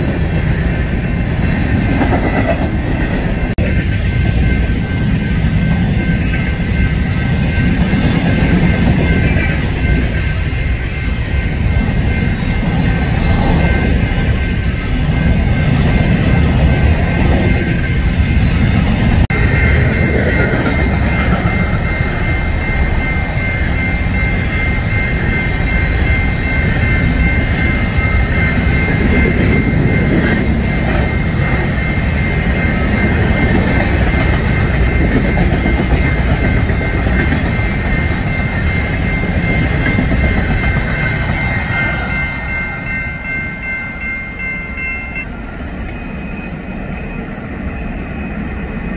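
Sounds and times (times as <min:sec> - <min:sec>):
freight train wheels rumbling: 0:00.0 - 0:48.9.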